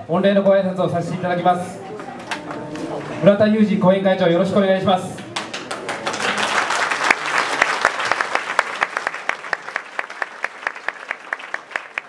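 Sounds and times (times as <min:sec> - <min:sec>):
audience applause: 0:05.2 - 0:12.0.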